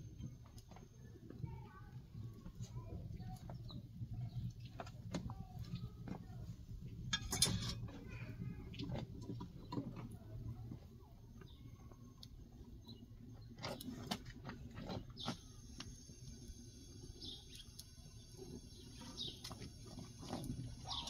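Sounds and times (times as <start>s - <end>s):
wood fire burning: 0.0s - 21.0s
bird chirps: 17.1s - 19.6s, 20.8s - 21.0s.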